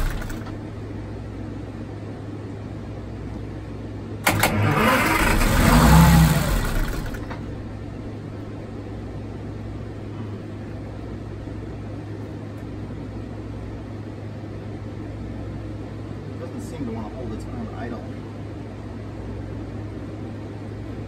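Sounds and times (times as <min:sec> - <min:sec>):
diesel engine revving: 0:00.0 - 0:00.6, 0:04.2 - 0:08.5
steady low hum: 0:00.0 - 0:21.0.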